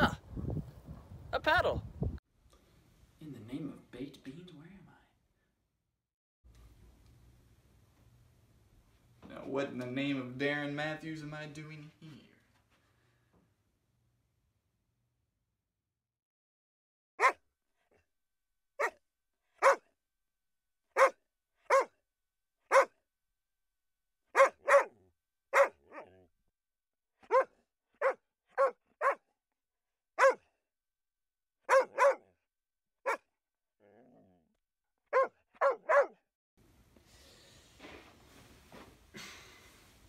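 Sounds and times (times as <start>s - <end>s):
dog barking: 17.2s - 17.4s, 19.6s - 19.9s, 21.0s - 22.0s, 22.7s - 23.0s, 24.3s - 26.3s, 27.3s - 29.3s, 30.2s - 30.5s, 31.7s - 32.4s, 35.1s - 36.2s.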